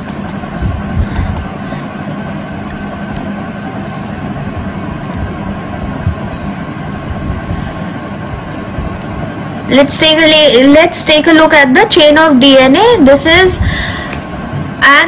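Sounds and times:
low hum: 0.0 - 11.4.

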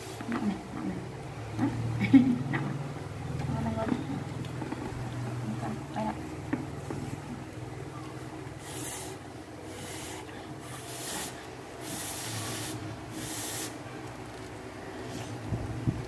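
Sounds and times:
person blowing puffs of breath: 8.6 - 13.8.

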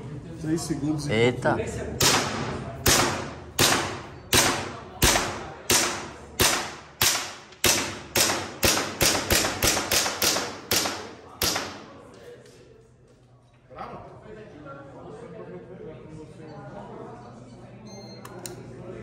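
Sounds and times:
airsoft pistol shots echoing: 2.0 - 12.0.

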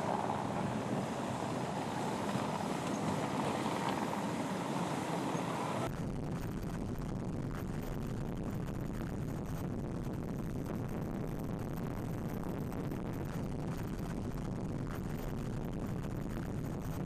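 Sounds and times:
wind buffeting microphone: 0.0 - 5.9
low rumble: 0.0 - 17.0
wind: 0.0 - 17.0.

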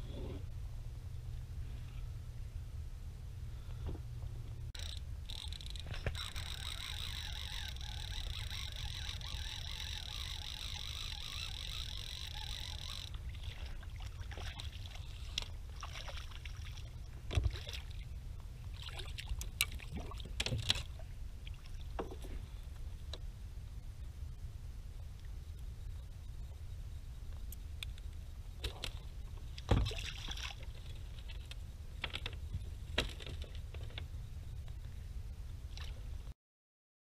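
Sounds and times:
low rumble: 0.0 - 11.0
water splashing along kayak: 5.4 - 22.8, 28.6 - 34.0.

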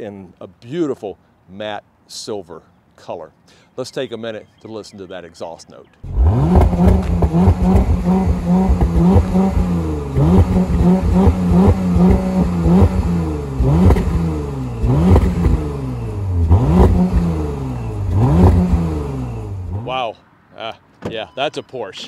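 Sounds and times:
car exhaust revving: 6.0 - 20.0.

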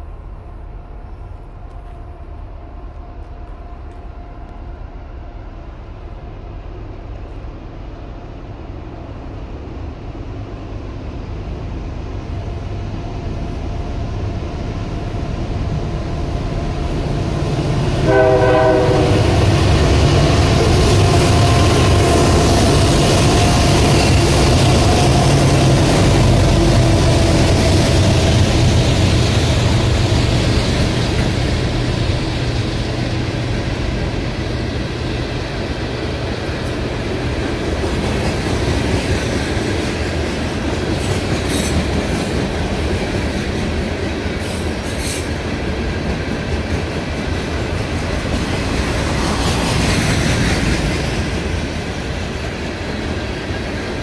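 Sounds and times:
train rumbling past: 0.0 - 54.0
train horn note: 18.0 - 19.7.

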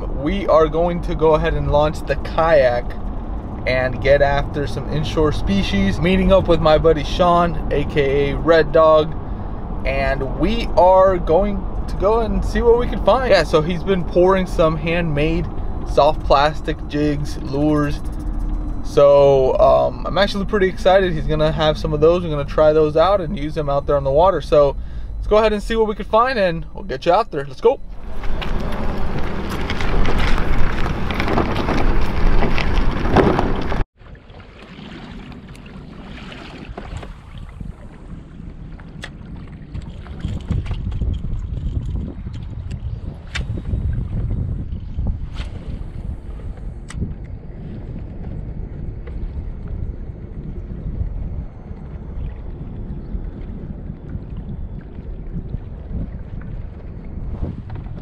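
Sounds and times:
wind blowing on microphone: 0.0 - 33.8, 35.3 - 58.0
water around a kayak: 0.0 - 58.0.

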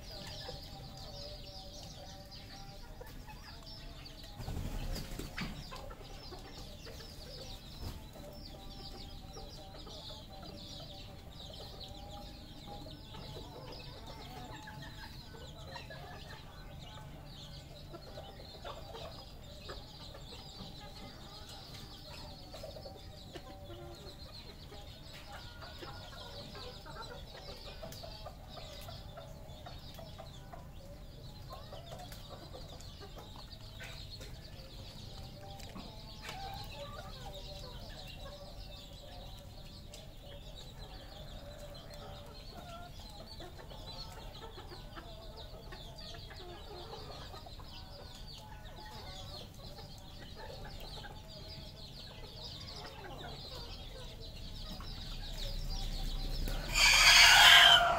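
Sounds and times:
flock of fowl clucking: 0.0 - 57.9.

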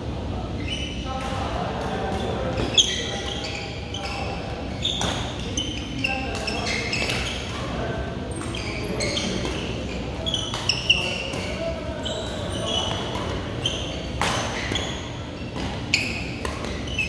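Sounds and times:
shoes squeaking on court: 0.6 - 1.1, 2.1 - 17.0
rackets hitting shuttlecock: 9.2 - 11.6, 12.3 - 17.0.

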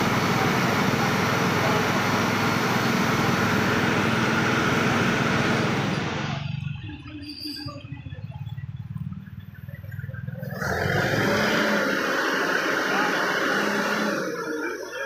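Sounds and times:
onlookers' voices: 0.0 - 6.3, 9.8 - 15.0
heavy diesel engine revving: 0.0 - 7.1, 10.1 - 15.0.

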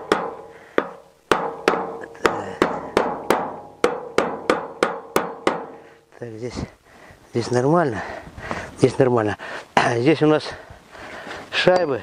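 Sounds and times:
hammer tapping on metal: 0.0 - 5.8.

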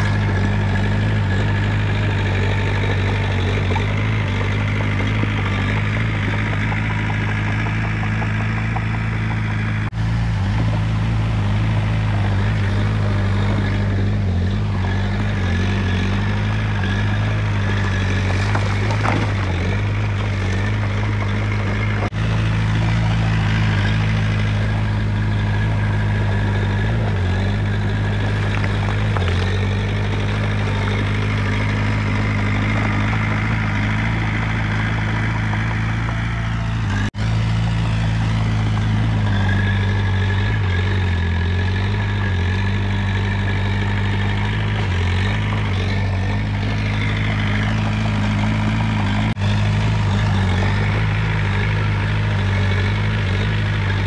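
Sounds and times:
bulldozer diesel engine running: 0.0 - 54.0.

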